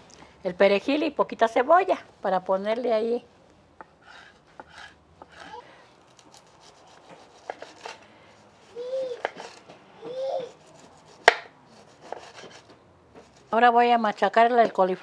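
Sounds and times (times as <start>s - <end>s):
knife chopping on wooden board: 6.3s - 8.0s, 9.1s - 10.2s, 10.8s - 13.5s.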